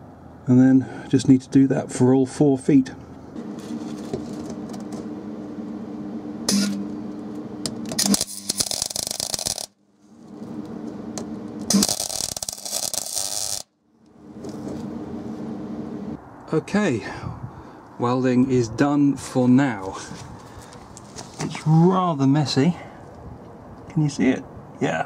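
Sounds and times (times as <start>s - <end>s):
steady hum: 3.1s - 16.4s
welding arc crackling: 6.5s - 13.7s.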